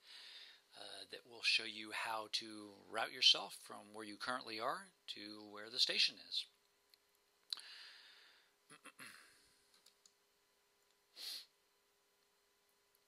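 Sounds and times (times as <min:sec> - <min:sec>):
person breathing: 0:00.0 - 0:00.7, 0:07.6 - 0:09.6, 0:11.1 - 0:11.5
faint steady hum: 0:00.0 - 0:13.0
faint clicks: 0:09.7 - 0:10.2.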